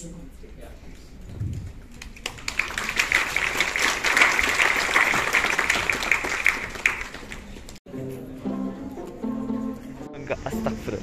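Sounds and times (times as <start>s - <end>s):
audience applauding: 1.9s - 7.8s.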